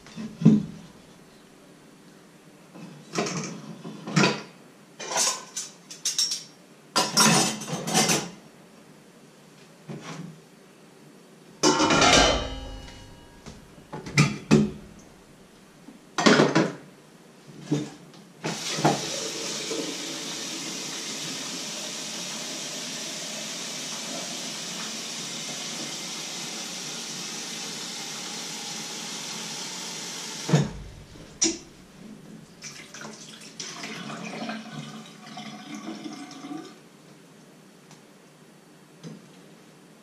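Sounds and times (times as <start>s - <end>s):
kettle knocking and clattering: 11.7s - 13.1s
tap water running into kettle: 18.5s - 31.8s, 32.6s - 36.8s.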